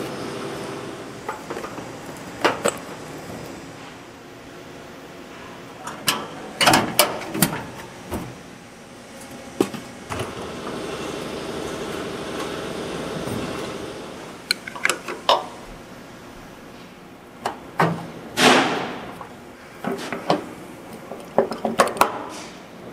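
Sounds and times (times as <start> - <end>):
steady machine whirr: 0.0 - 4.9, 7.8 - 14.5
metal parts and tools clanking: 14.5 - 15.6.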